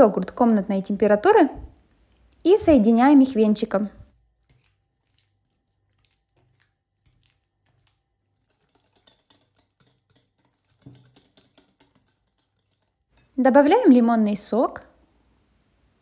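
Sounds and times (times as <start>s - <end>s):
soft squishing: 1.7s - 13.8s
whisk clicking against glass bowl: 4.1s - 13.4s.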